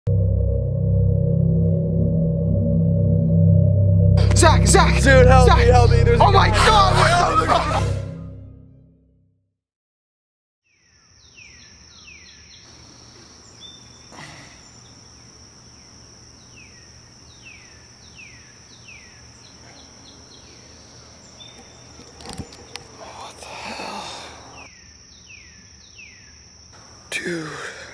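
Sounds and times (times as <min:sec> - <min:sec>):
constant high-pitched tone: 0:00.1 - 0:08.6
birds calling: 0:10.7 - 0:27.3.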